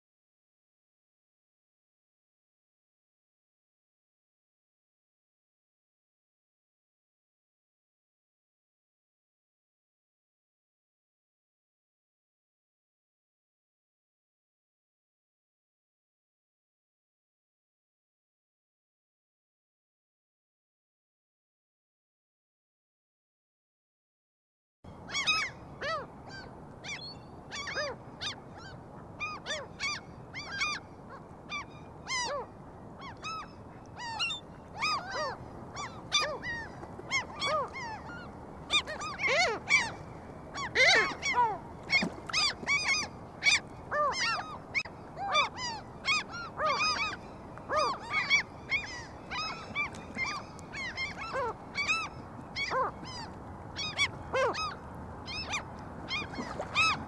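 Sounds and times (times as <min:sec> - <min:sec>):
steady outdoor hiss: 0:24.9 - 0:56.8
gulls calling: 0:25.1 - 0:57.0.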